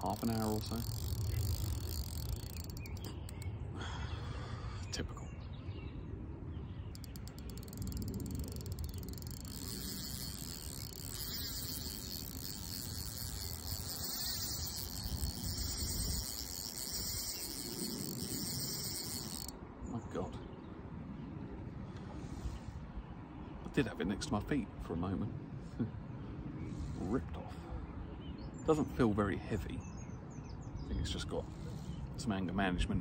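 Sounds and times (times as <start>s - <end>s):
fishing reel clutch ticking: 0.0s - 3.5s, 7.0s - 19.5s
low wind rumble on microphone: 0.0s - 28.6s.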